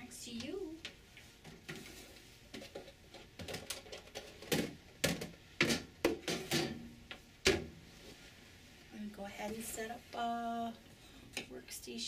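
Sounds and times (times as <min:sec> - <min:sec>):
plastic basin knocking and clattering: 0:02.6 - 0:07.7.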